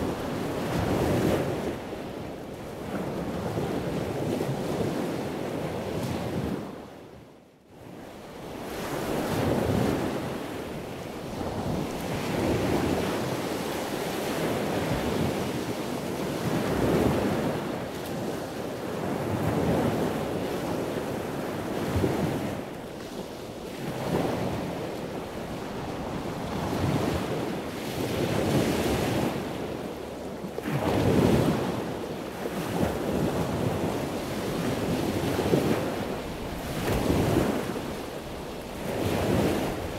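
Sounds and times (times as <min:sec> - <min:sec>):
wind buffeting microphone: 0:08.4 - 0:39.9
sea waves washing: 0:30.6 - 0:39.9.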